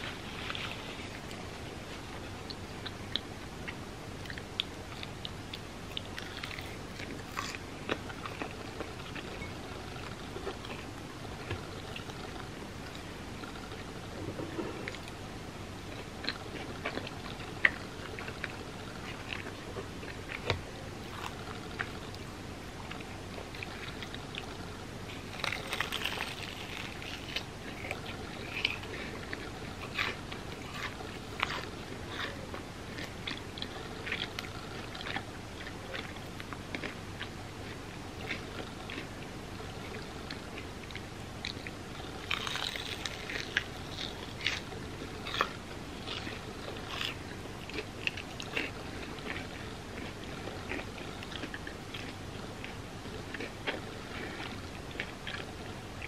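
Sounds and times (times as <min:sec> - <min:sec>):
steady hiss: 0:00.0 - 0:50.4
wet chewing clicks: 0:15.9 - 0:56.0
crunchy bites: 0:22.9 - 0:39.1, 0:39.7 - 0:55.5.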